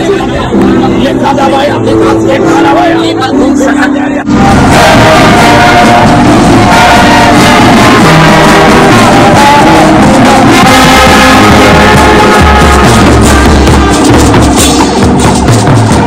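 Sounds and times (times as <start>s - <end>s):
marching brass band: 4.3s - 16.0s.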